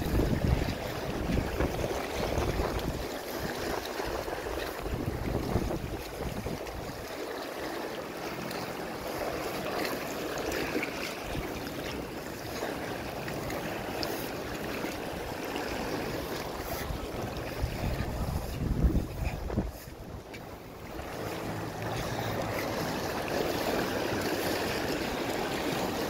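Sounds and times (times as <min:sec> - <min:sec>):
wind rumbling on microphone: 0:00.0 - 0:07.2, 0:13.1 - 0:26.0
small waves washing over rocks: 0:00.0 - 0:26.0.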